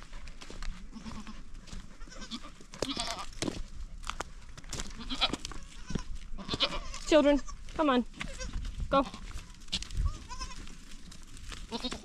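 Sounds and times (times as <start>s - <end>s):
goats bleating: 0.9s - 3.3s, 4.9s - 7.6s, 8.2s - 10.7s, 11.7s - 12.0s.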